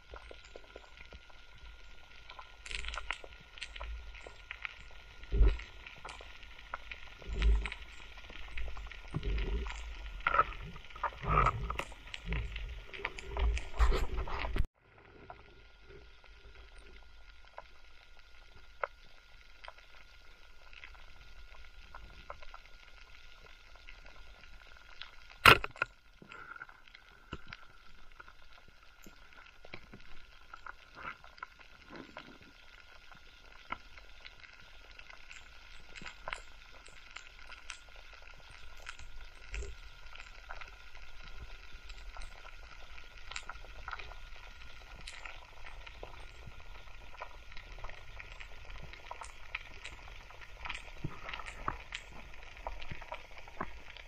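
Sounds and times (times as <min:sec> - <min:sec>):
snapping shrimp crackling underwater: 0:02.0 - 0:14.7, 0:20.6 - 0:54.0
loud sharp click: 0:25.4 - 0:25.8.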